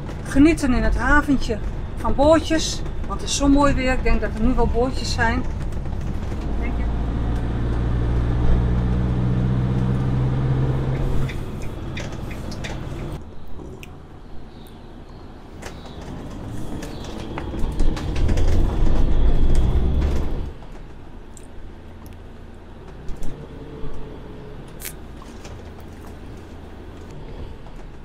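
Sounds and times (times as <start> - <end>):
van rolling over bricks: 0.0 - 13.2, 15.5 - 23.6.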